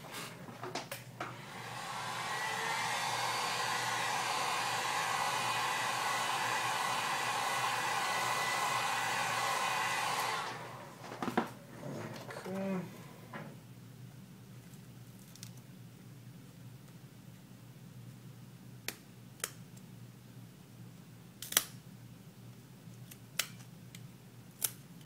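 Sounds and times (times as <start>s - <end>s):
hot-air blower rushing: 1.2s - 13.5s.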